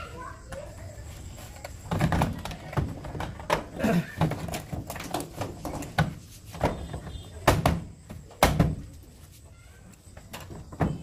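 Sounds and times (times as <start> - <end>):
plastic panel knocking and clattering: 1.9 - 8.8.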